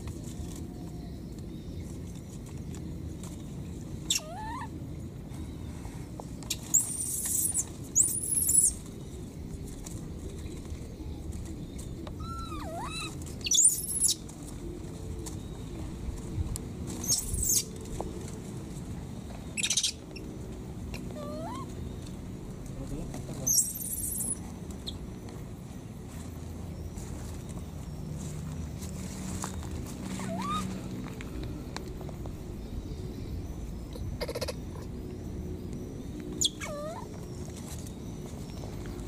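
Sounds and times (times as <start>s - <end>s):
baby monkey cooing: 4.1s - 4.8s, 6.5s - 8.8s, 12.2s - 14.2s, 17.0s - 17.7s, 19.6s - 20.0s, 20.9s - 21.7s, 23.4s - 25.0s, 30.1s - 30.8s, 33.9s - 34.9s, 36.4s - 37.1s
shrill squeals: 30.2s - 30.7s, 36.4s - 37.1s.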